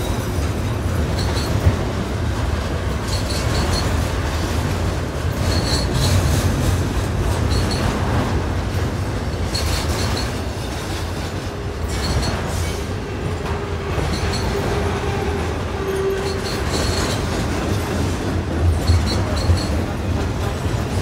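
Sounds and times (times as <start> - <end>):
train wheels rumbling on rail: 0.0 - 21.0
high-pitched wheel squeaks: 15.8 - 17.3.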